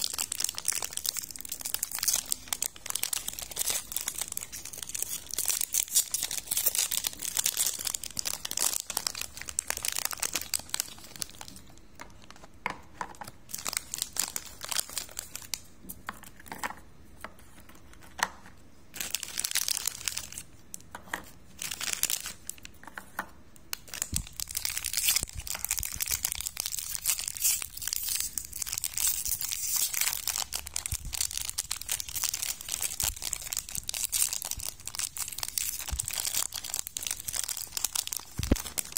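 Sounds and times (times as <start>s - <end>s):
plastic wrappers crackling: 0.0s - 12.6s, 13.5s - 15.7s, 18.9s - 22.8s, 23.7s - 38.9s.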